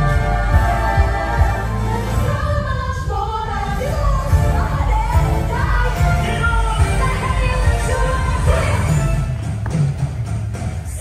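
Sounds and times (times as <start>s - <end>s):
voices singing: 0.0s - 9.3s.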